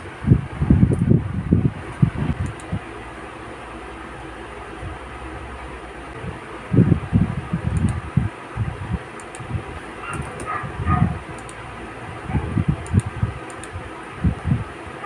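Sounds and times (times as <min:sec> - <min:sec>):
laptop keyboard typing: 0:02.3 - 0:02.8, 0:07.6 - 0:08.0, 0:09.1 - 0:11.6, 0:12.7 - 0:13.8
faint sharp clicks: 0:12.8 - 0:13.8.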